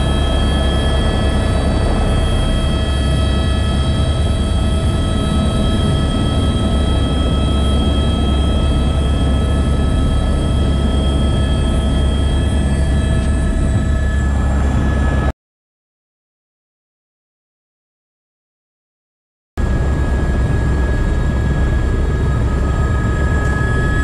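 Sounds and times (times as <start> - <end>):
helicopter rotor rumble: 0.0 - 15.3, 19.6 - 24.0
turbine whines: 0.0 - 15.3, 19.6 - 24.0.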